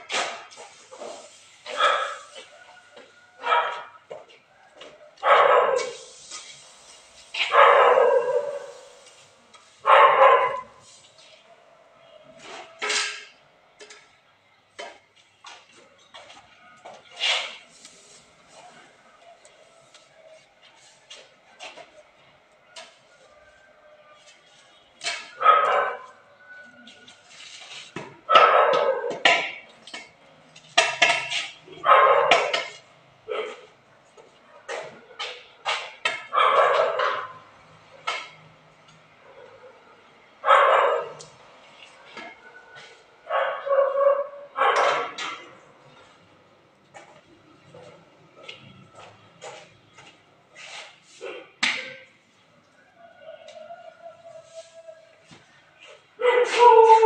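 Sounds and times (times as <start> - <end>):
dog barking: 1.7 - 2.4, 3.4 - 4.0, 5.2 - 6.0, 7.4 - 8.8, 9.8 - 10.8, 25.4 - 26.2, 28.3 - 29.3, 31.8 - 32.6, 33.3 - 33.7, 36.2 - 37.4, 39.2 - 41.3, 43.3 - 45.2, 56.2 - 57.0
tool scraping on pavement: 17.0 - 18.7, 49.4 - 51.2.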